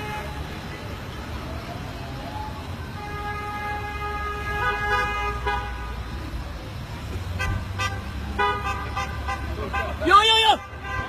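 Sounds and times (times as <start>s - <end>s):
car horn: 0.0s - 0.5s, 2.9s - 6.0s, 7.4s - 11.0s
street traffic rumble: 0.0s - 11.0s.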